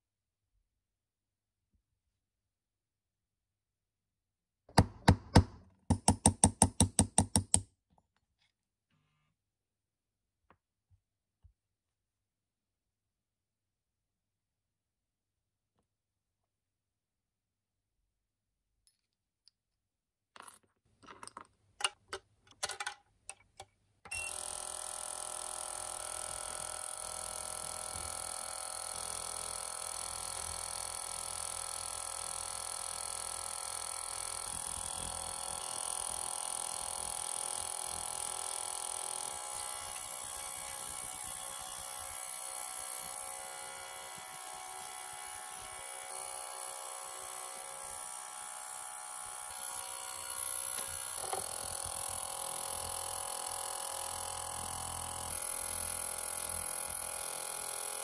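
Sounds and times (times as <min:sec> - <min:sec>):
ultrasonic cleaner buzzing: 0:24.2 - 0:58.0.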